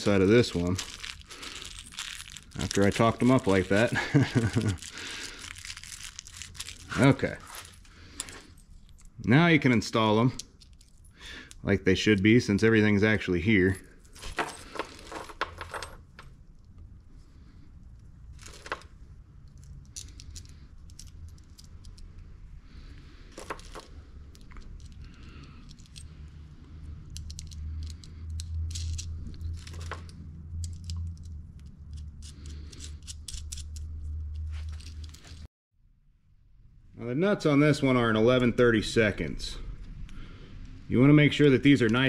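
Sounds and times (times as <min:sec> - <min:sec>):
metal nuts and washers clinking: 0:13.8 - 0:16.3, 0:18.4 - 0:22.1, 0:23.3 - 0:26.3, 0:27.0 - 0:35.5.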